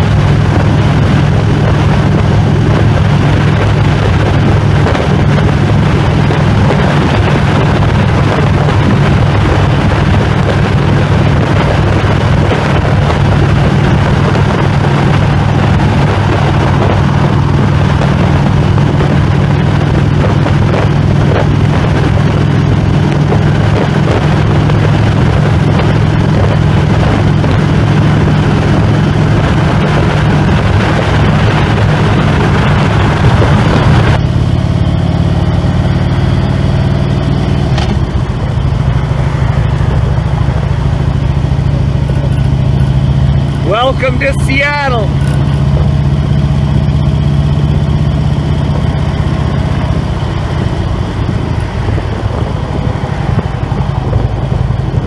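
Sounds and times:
motorcycle engine cruising: 0:00.0 - 0:55.0
wind rushing: 0:00.0 - 0:55.0.

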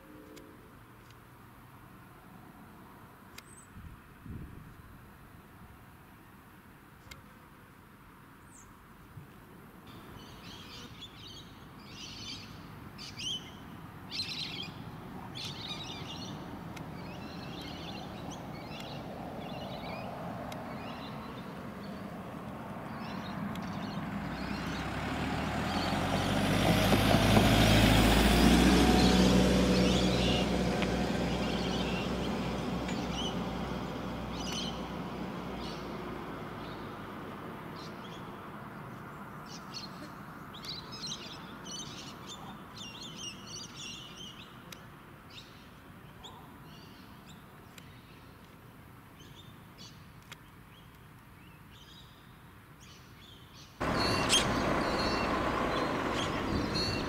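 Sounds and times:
small birds chirping: 0:09.9 - 0:26.4, 0:29.0 - 0:33.6, 0:34.3 - 0:34.9, 0:35.5 - 0:37.0, 0:37.7 - 0:57.0
vehicle passing by: 0:14.1 - 0:40.5, 0:53.8 - 0:57.0.

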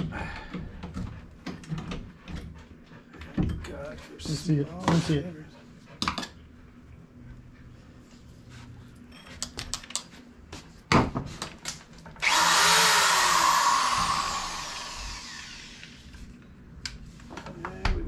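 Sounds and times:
power drill boring through wood: 0:12.2 - 0:16.0.

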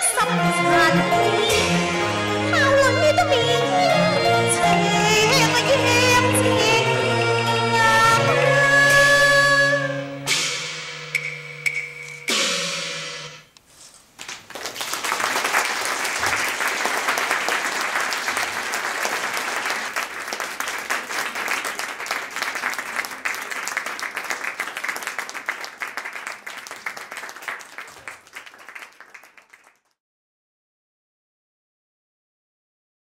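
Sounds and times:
music note ringing: 0:10.6 - 0:13.5
audience applauding: 0:14.2 - 0:30.0.

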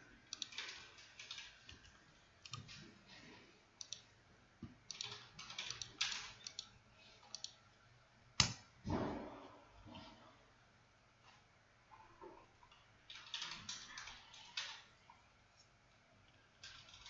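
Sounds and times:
computer mouse clicks: 0:00.3 - 0:02.8, 0:03.8 - 0:04.1, 0:04.9 - 0:07.6
keyboard keystrokes: 0:04.9 - 0:06.7.

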